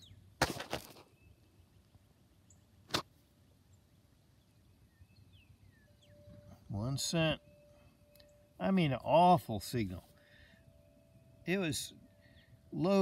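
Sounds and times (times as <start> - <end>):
faint bird chirps: 0.0 - 0.3, 3.6 - 13.0
fingers rustling in loose soil: 0.4 - 1.2.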